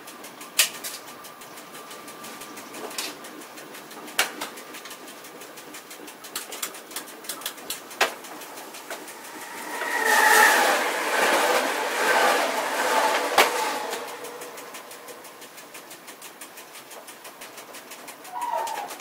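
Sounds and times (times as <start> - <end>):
clicks and rattles in train cab: 0.0 - 10.0, 11.1 - 19.0
passing train rush: 0.0 - 19.0
locomotive whine: 7.8 - 16.2.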